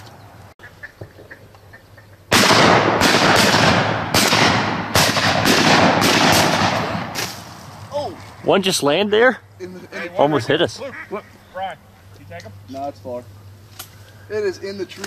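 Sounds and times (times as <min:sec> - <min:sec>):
shotgun blasts with echo: 0:02.3 - 0:07.5.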